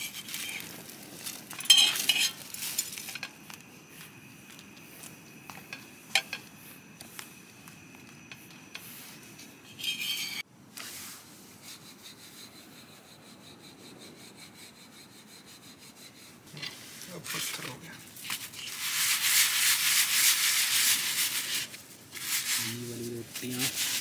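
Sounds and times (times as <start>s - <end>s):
metal spatula scraping on a griddle: 1.6s - 2.6s, 9.6s - 10.4s.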